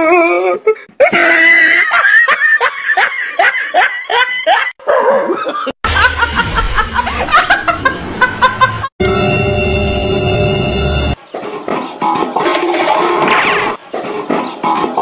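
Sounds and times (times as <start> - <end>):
person laughing hard: 1.0 - 8.9
low hum: 5.9 - 11.2.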